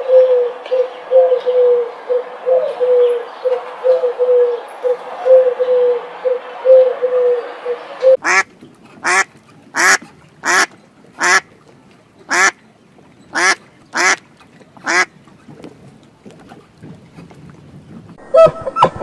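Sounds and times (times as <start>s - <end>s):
pigeon cooing: 0.0s - 8.4s
duck quacking: 8.2s - 11.5s, 12.3s - 12.6s, 13.3s - 14.2s, 14.8s - 15.1s.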